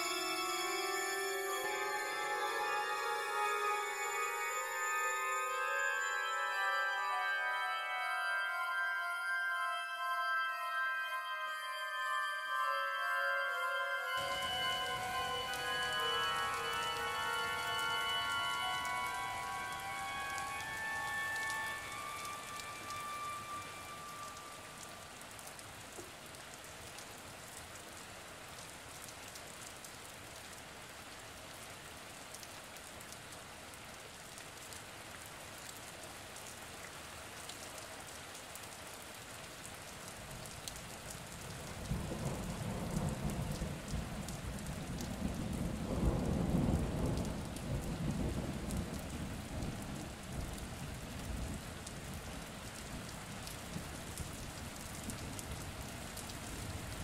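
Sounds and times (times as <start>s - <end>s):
steady rain falling: 0.0s - 57.0s
thunder rumbling: 41.7s - 51.6s.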